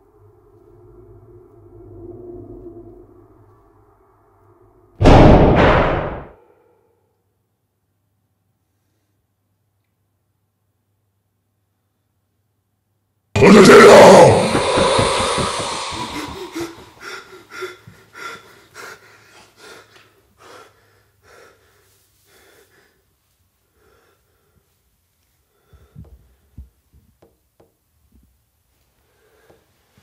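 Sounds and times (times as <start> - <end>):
man gasping breaths: 13.5 - 24.8, 25.4 - 26.6.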